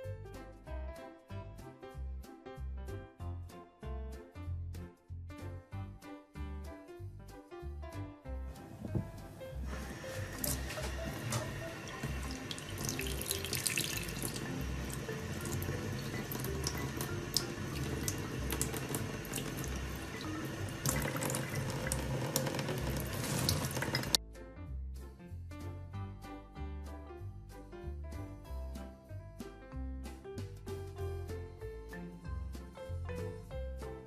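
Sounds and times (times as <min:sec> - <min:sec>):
background music with steady beat: 0:00.0 - 0:34.0
water running from faucet: 0:09.5 - 0:24.2.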